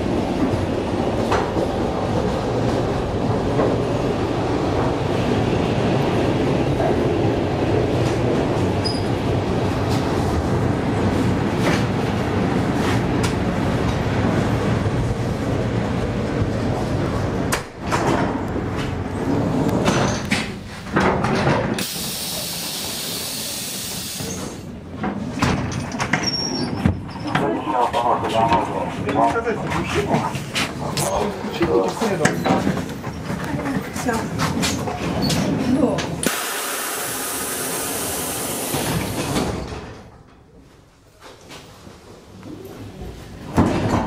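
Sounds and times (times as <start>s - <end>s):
electric train rumbling on rails: 0.0s - 44.0s
compressed air hiss of doors: 21.8s - 24.6s.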